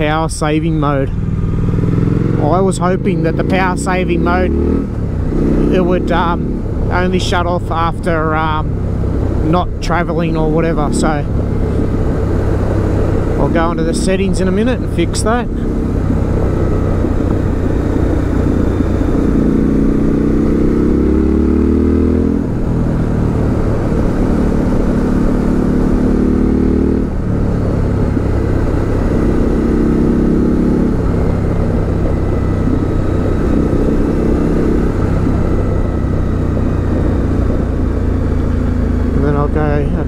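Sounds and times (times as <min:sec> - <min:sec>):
motorcycle engine revving: 0:00.0 - 0:40.0.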